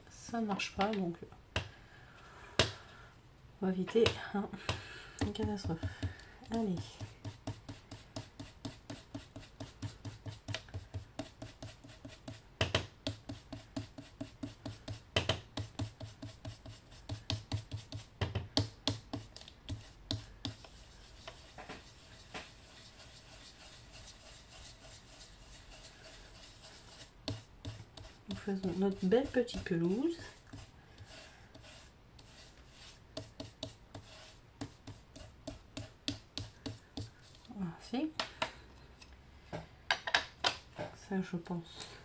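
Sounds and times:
foam tool tapping on paper: 4.0s - 22.5s, 33.2s - 37.2s
faint rubbing: 19.1s - 37.6s.

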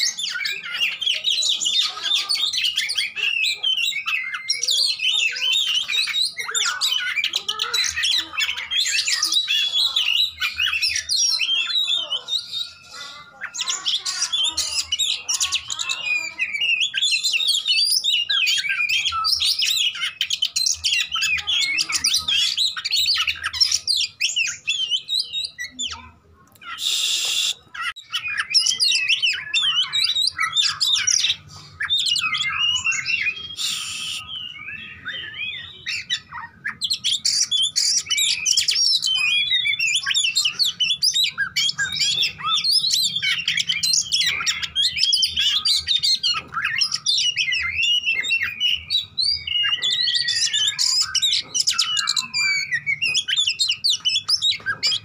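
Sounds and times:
bird singing: 0.0s - 55.0s.

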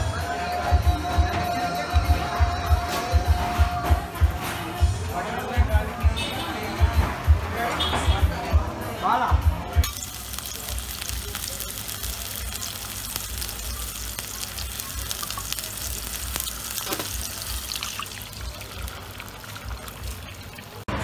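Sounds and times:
sausages sizzling in oil: 9.8s - 20.9s.

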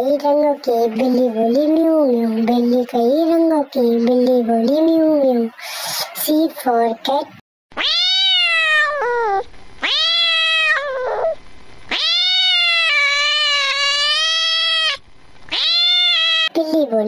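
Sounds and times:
cat meowing: 7.8s - 16.5s.

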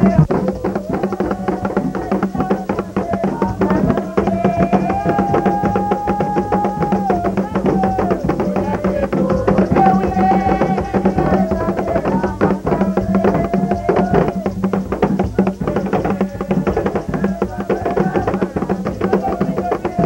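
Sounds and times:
hand drums beating fast rhythm: 0.0s - 20.0s
voices singing long notes: 0.0s - 20.0s.

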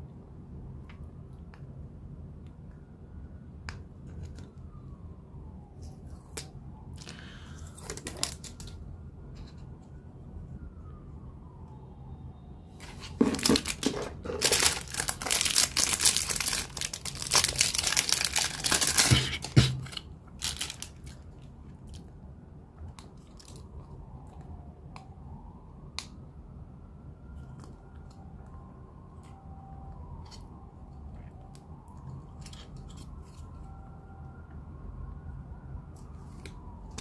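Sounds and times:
plastic packaging crinkling and tearing: 7.0s - 8.8s, 12.8s - 22.1s, 23.1s - 23.7s
light clicks and rustles of handling: 27.3s - 33.8s.

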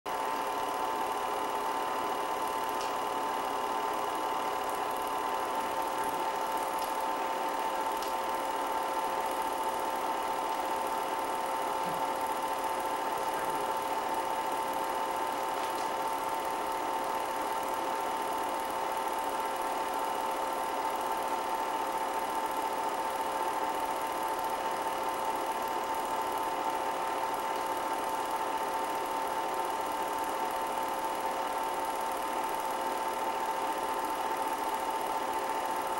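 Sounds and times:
projector mechanical whirr: 0.1s - 35.9s.

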